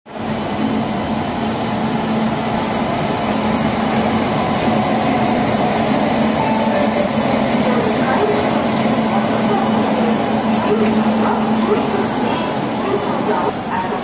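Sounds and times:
electric locomotive whirring: 0.1 - 14.0.

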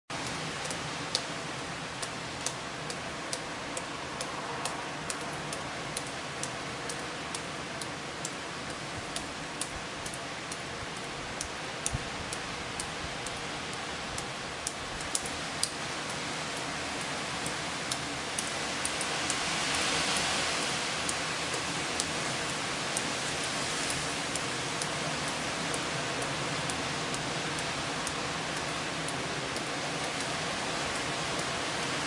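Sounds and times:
storm wind rushing through trees: 0.1 - 32.0
sharp ticks: 0.2 - 1.3, 2.0 - 13.4, 14.2 - 15.8.

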